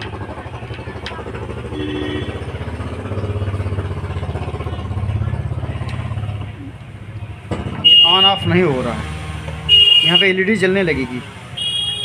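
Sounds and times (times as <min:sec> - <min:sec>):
small engine running: 0:00.0 - 0:06.4.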